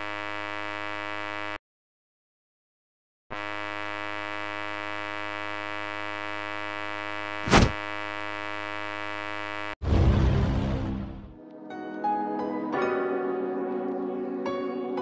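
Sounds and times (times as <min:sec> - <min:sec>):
buzzing drone: 0:00.0 - 0:01.6, 0:03.3 - 0:09.8
brief loud burst: 0:07.4 - 0:07.8
crash with deep rumble: 0:09.8 - 0:11.3.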